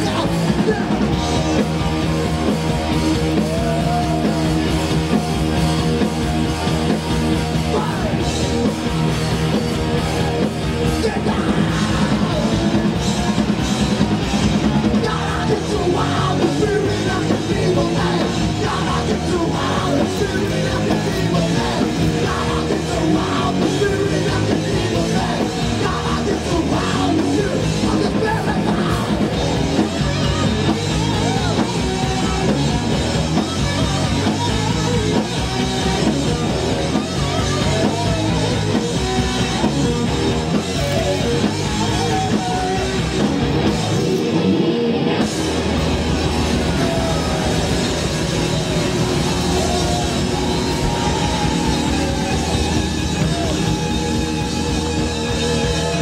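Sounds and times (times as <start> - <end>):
bass guitar: 0.0 - 56.0
distorted electric guitar: 0.0 - 56.0
drums: 0.0 - 56.0
shouted vocals: 3.1 - 5.6, 10.0 - 12.9, 14.8 - 33.2, 35.8 - 44.5, 45.6 - 56.0.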